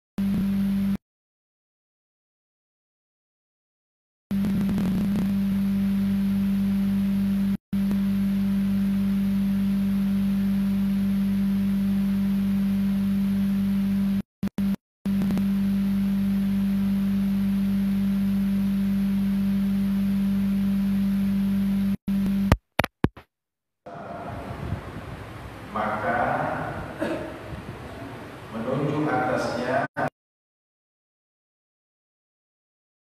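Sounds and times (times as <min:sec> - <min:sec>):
steady electrical hum: 0:23.9 - 0:30.0.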